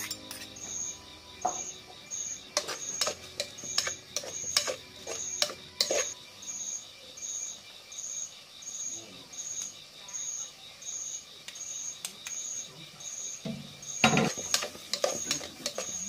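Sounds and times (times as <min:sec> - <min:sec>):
wooden utensil scraping metal pot: 0:00.0 - 0:00.8, 0:02.5 - 0:06.2, 0:13.9 - 0:16.0
insect chirping: 0:00.0 - 0:16.0.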